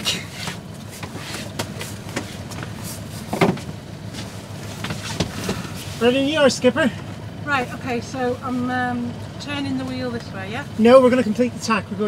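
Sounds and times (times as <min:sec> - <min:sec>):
diesel engine running: 0:00.0 - 0:12.0.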